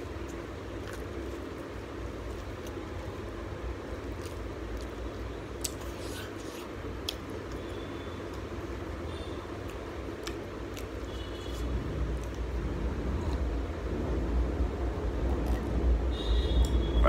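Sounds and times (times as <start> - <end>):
low background hum: 0.0 - 17.0
chewing: 0.2 - 3.1, 4.0 - 7.7, 9.7 - 12.6.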